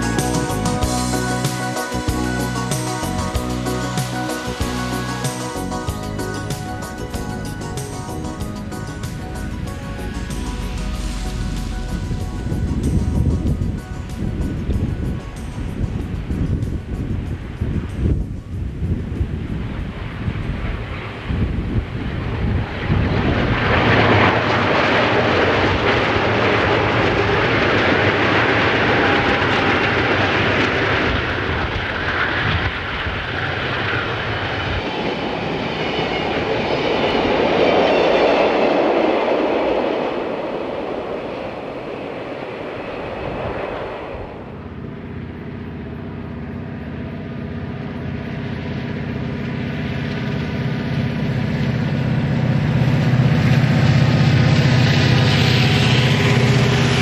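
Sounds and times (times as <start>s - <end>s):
diesel locomotive passing: 0.0s - 57.0s
distant diesel locomotive drone: 0.0s - 57.0s
hopper cars rolling on rails: 0.0s - 57.0s.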